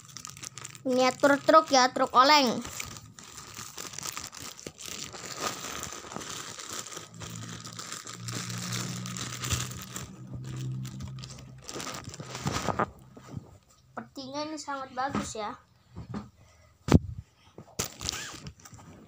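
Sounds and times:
plastic wrapping crinkling: 0.0 - 13.4, 17.8 - 18.8
low steady hum: 2.0 - 14.2.

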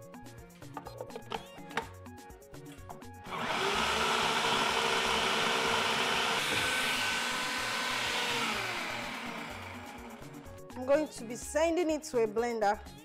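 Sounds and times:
food processor motor chopping: 3.2 - 10.5.

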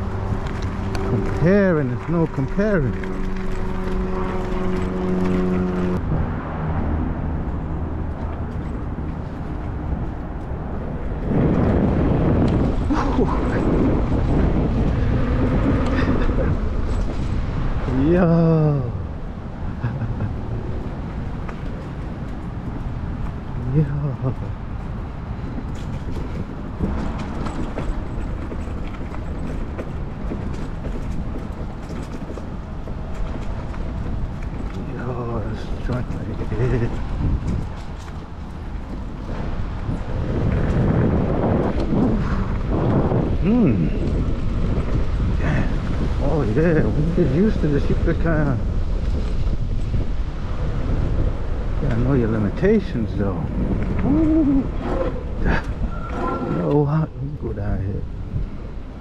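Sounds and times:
bike rattling: 0.0 - 6.1, 7.6 - 18.1, 19.8 - 56.9
tyre and wind noise: 0.0 - 59.0.

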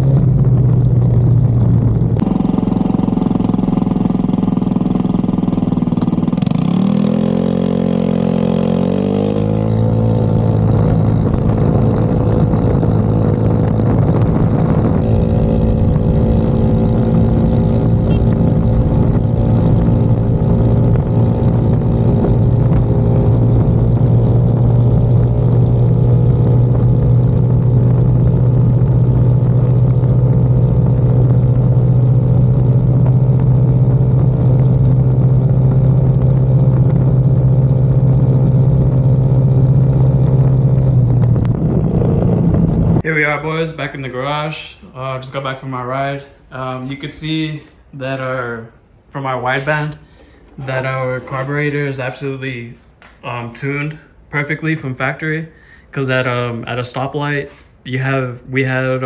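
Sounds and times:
wind noise: 0.0 - 46.0
scooter engine revving: 2.2 - 43.0.

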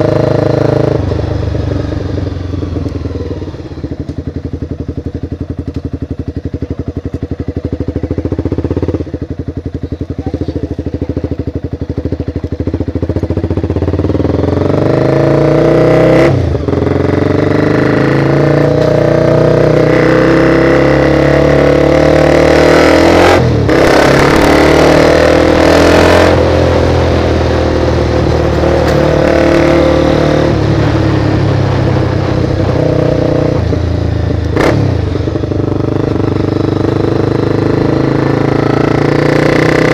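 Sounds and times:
wind and road noise: 0.0 - 9.8, 10.6 - 39.9
motorcycle engine revving: 0.0 - 39.9.

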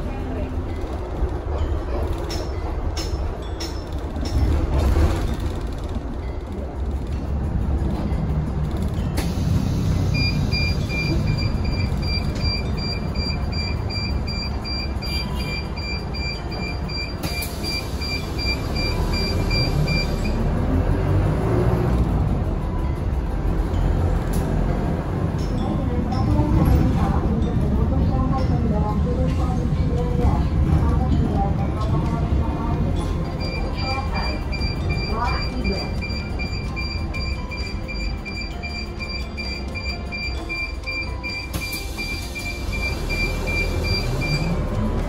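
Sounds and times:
bus engine and road rumble: 0.0 - 45.0
electronic beeps: 10.1 - 20.4, 33.2 - 44.6.

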